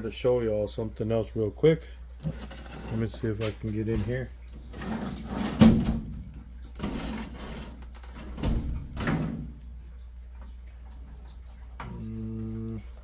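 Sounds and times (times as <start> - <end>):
knocks and clatters: 2.2 - 9.6.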